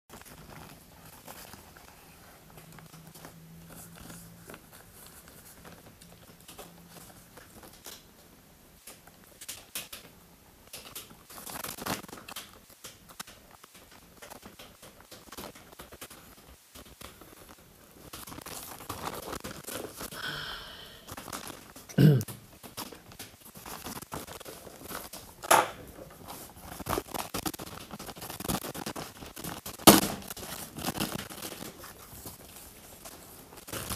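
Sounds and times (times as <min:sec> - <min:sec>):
plastic bag tearing and crinkling: 0:26.3 - 0:33.9.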